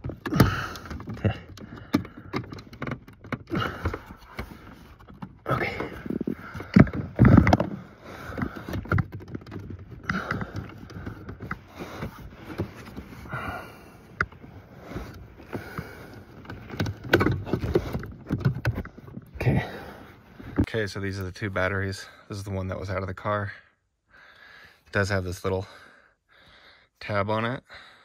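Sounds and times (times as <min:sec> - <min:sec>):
tools clicking and scraping plastic: 0:00.0 - 0:20.7.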